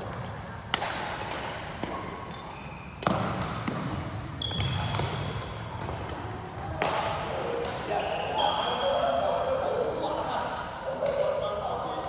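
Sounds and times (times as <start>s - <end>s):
racket striking shuttlecock: 0.6s - 7.8s
shoe squeaks on court floor: 2.4s - 3.3s, 4.4s - 5.5s, 8.0s - 9.0s.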